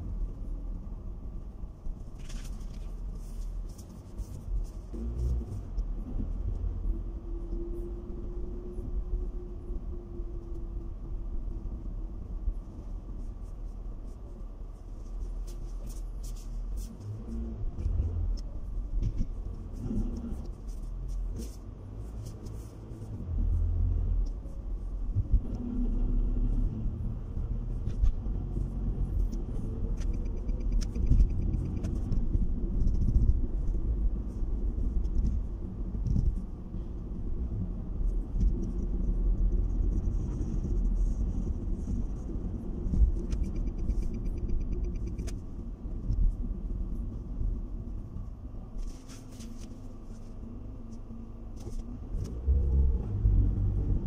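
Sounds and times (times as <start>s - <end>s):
car driving rumble: 0.0s - 54.0s.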